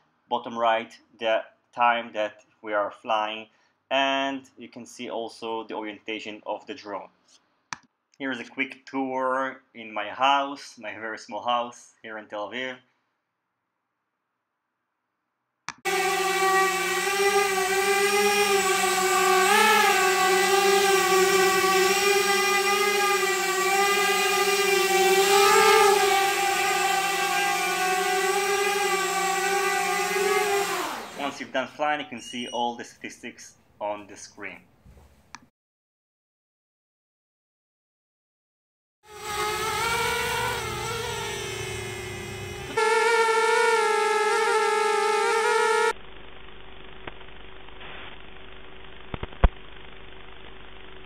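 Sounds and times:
quadcopter motors whining: 15.8 - 31.6, 39.1 - 46.0.

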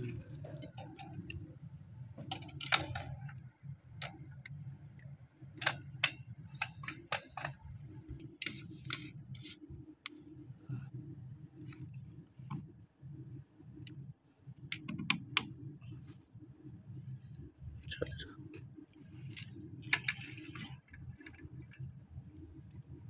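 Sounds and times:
steady low hum: 0.0 - 23.0
plastic pipe fittings clicking: 2.2 - 3.4, 4.0 - 7.6, 19.4 - 21.4.

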